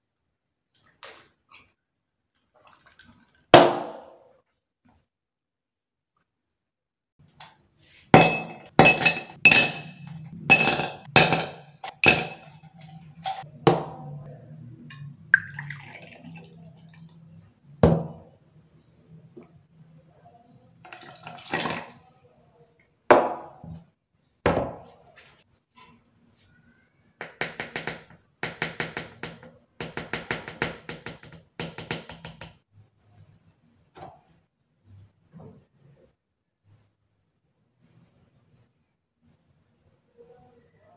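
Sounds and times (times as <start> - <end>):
liquid pouring: 2.6 - 3.5, 14.9 - 17.6, 20.8 - 22.0
glass bottles knocking: 8.2 - 13.4.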